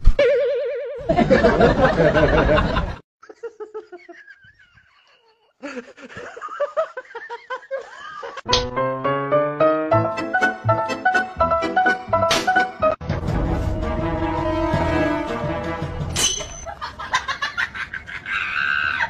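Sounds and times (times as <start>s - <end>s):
people laughing: 1.0s - 8.5s, 16.7s - 19.0s
piano music: 8.5s - 16.2s.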